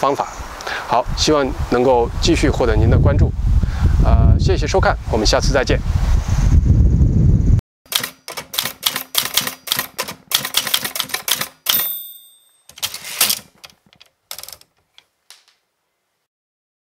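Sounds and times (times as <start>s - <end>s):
typewriter carriage bell: 7.9s - 13.6s, 14.3s - 14.6s
typewriter carriage return rasp: 7.9s - 14.7s
typewriter keys striking: 7.9s - 14.7s.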